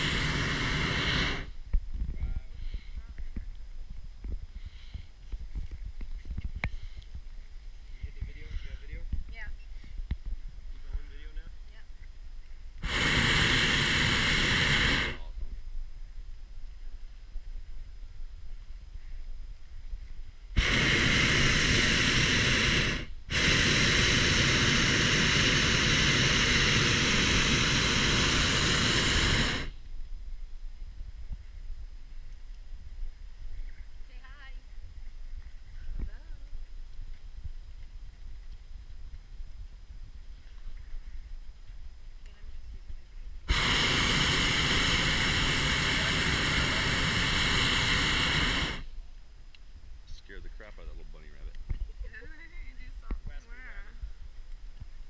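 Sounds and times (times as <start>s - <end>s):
propane burner blast: 0.0s - 1.8s, 12.7s - 15.5s, 20.5s - 30.0s, 43.4s - 49.0s.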